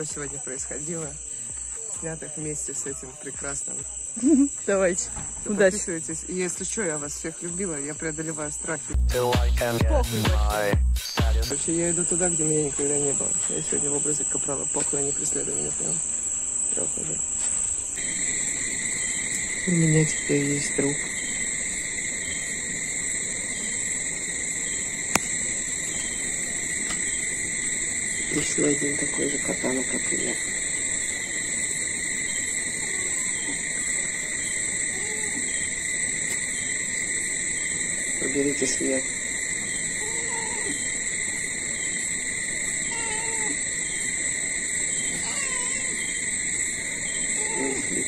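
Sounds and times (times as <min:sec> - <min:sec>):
crickets trilling: 0:00.0 - 0:48.0
steady high-pitched whine: 0:00.0 - 0:48.0
cat meowing: 0:32.7 - 0:33.6, 0:34.9 - 0:35.6, 0:40.0 - 0:40.9, 0:42.8 - 0:43.6, 0:45.0 - 0:46.2, 0:47.3 - 0:48.0.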